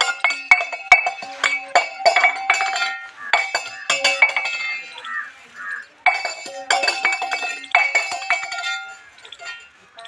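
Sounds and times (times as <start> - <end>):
metal bells clanging: 0.0 - 10.0.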